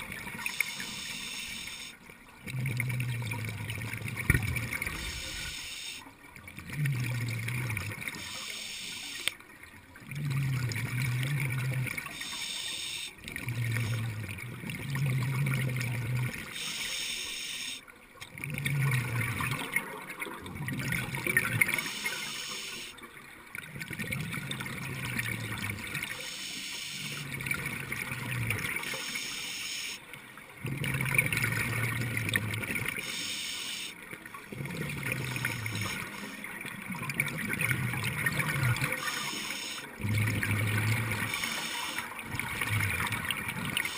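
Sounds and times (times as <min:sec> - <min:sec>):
exhaust bubbles gurgling: 0:00.0 - 0:16.9, 0:17.7 - 0:29.2, 0:30.3 - 0:33.2, 0:34.0 - 0:43.9
regulator inhale hiss: 0:00.5 - 0:02.0, 0:05.0 - 0:06.0, 0:08.2 - 0:09.3, 0:12.1 - 0:13.2, 0:16.5 - 0:17.8, 0:21.8 - 0:23.0, 0:26.2 - 0:27.2, 0:28.9 - 0:30.0, 0:33.0 - 0:34.0, 0:39.0 - 0:39.9, 0:41.3 - 0:42.1.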